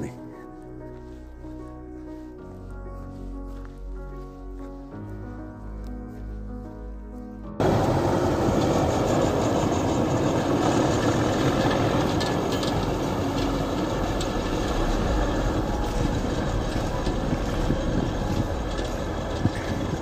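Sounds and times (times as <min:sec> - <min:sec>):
tractor diesel engine under load: 0:07.6 - 0:20.0.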